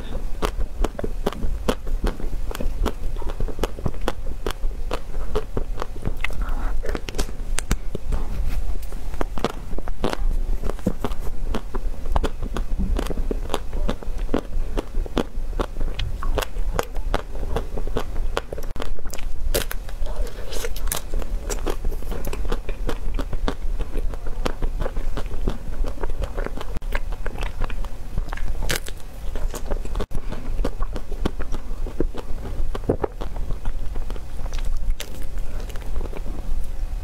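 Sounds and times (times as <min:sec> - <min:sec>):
low steady hum: 0:00.0 - 0:37.0
crunching ice cream bar: 0:09.2 - 0:36.4.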